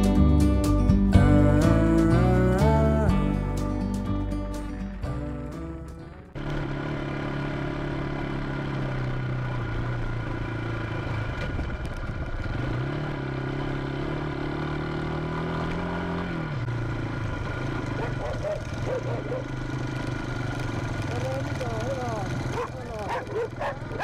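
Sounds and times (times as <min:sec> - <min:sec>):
motorcycle engine running: 0:00.0 - 0:24.0
wind and road noise: 0:06.3 - 0:24.0.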